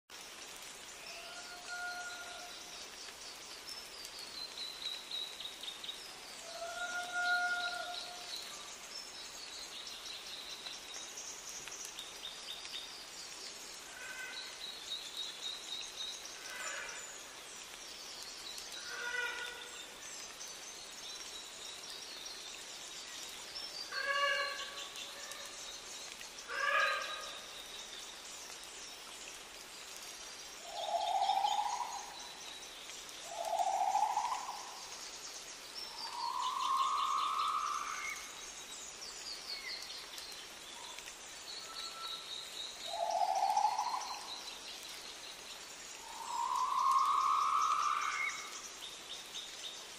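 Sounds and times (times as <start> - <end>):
lower fuller bird calls: 35.8 - 38.4, 46.0 - 48.6.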